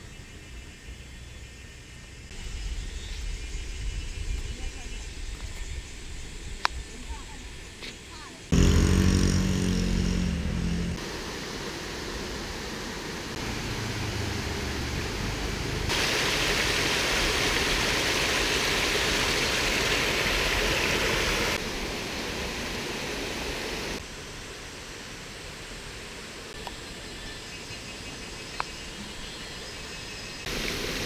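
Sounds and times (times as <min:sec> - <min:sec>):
waterfall splashing over rocks: 0:11.0 - 0:24.0, 0:30.5 - 0:31.0.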